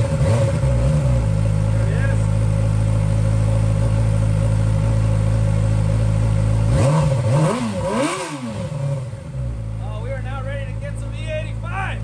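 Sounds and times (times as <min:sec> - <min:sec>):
motorcycle engine idling and revving: 0:00.0 - 0:12.0.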